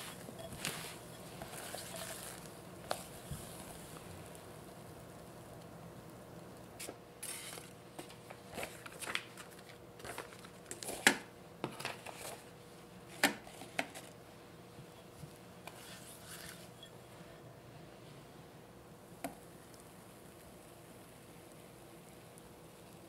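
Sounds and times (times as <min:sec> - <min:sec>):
soft paper rustling: 0:00.0 - 0:04.4, 0:06.8 - 0:11.0.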